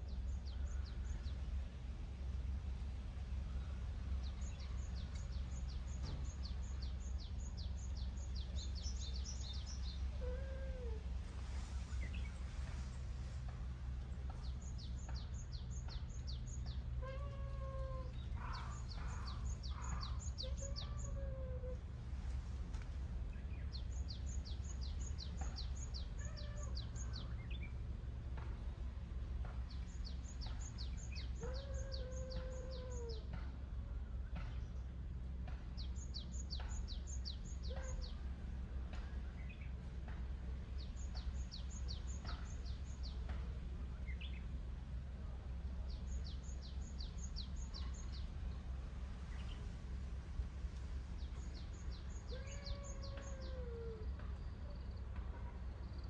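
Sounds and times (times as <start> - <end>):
steady low rumble: 0.0 - 56.0
cat meowing softly: 17.0 - 18.1, 26.2 - 26.8, 52.3 - 54.0.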